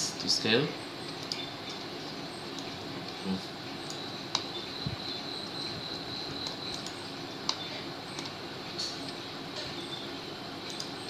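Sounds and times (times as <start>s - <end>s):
computer mouse clicks: 1.1s - 1.8s, 6.4s - 9.2s, 10.6s - 11.0s.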